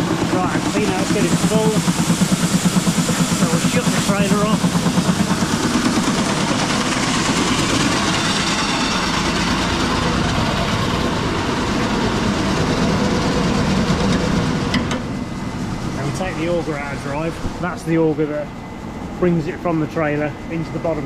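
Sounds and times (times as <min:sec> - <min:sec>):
machine hum: 0:00.0 - 0:21.0.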